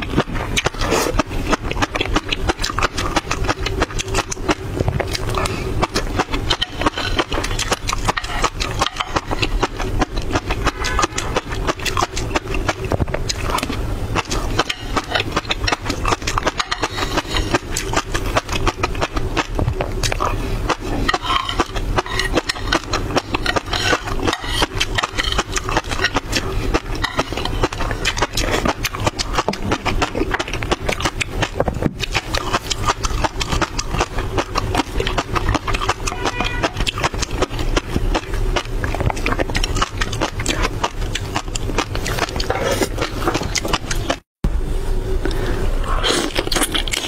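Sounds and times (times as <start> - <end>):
wet mouth sounds: 0.0 - 44.2, 45.2 - 47.0
spoon scraping plate: 21.1 - 22.8.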